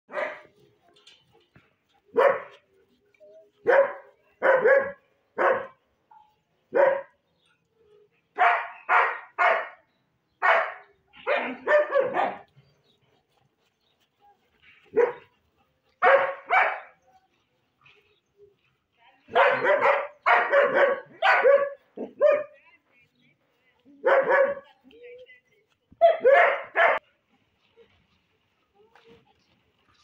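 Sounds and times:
dogs barking: 0.1 - 0.6, 2.1 - 2.6, 3.6 - 5.8, 6.7 - 7.2, 8.4 - 12.5, 14.9 - 15.3, 16.0 - 17.0, 19.3 - 22.6, 24.0 - 24.8, 26.0 - 27.0.

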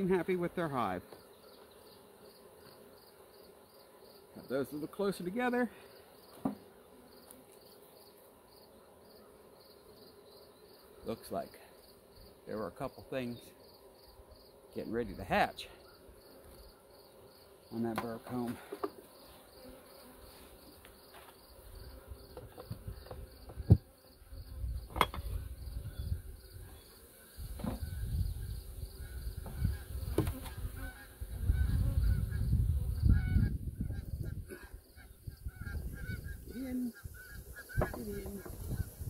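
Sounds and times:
wooden hive boxes knocking: 6.3 - 6.7, 22.3 - 23.9, 29.3 - 30.5, 37.8 - 38.7
wind gusting over microphone: 27.8 - 34.5, 35.2 - 39.0.

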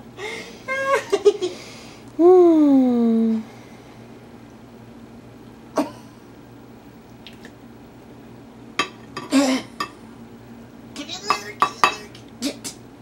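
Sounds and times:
spoon knocking against cup: 11.2 - 12.1.

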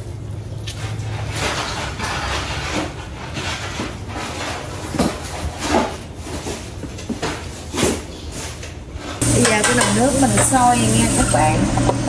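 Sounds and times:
pot hissing on stove: 9.2 - 12.0.

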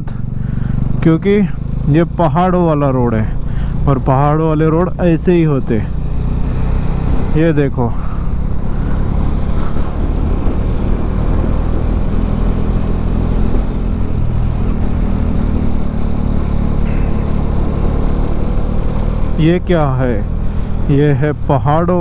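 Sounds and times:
motorcycle engine running: 0.0 - 22.0
road noise: 0.0 - 22.0
wind rushing: 8.1 - 16.8.

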